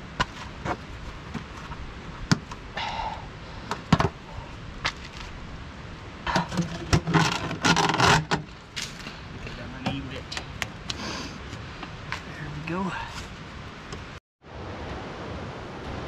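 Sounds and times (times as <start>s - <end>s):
scraping and rustling: 6.3s - 9.2s.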